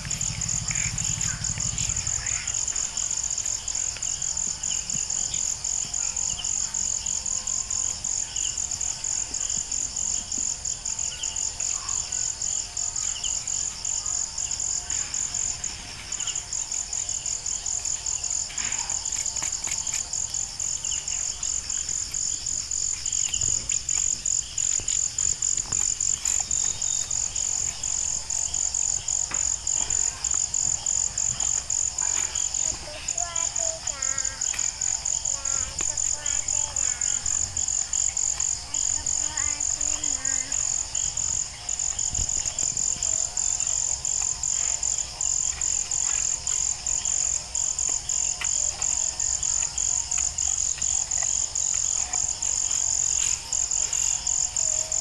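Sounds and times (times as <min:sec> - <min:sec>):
insects pulsing chorus: 0:00.0 - 0:55.0
scattered clicks and knocks: 0:22.1 - 0:37.4.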